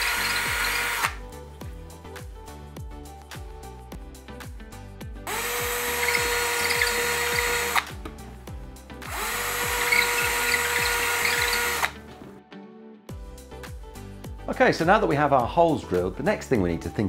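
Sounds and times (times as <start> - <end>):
drill boring into wall: 0.0 - 1.2, 5.3 - 8.0, 9.0 - 12.0
background music with steady beat: 0.0 - 17.0.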